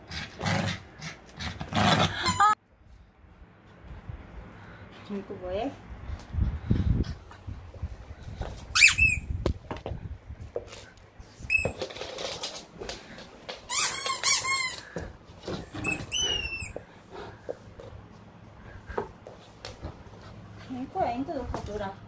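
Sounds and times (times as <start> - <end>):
squeaky dog toy squeaking: 8.7 - 9.3, 13.7 - 14.9, 15.7 - 16.8.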